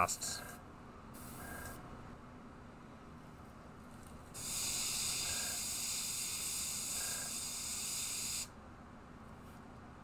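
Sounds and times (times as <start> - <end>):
airbrush spraying hiss: 4.4 - 8.5.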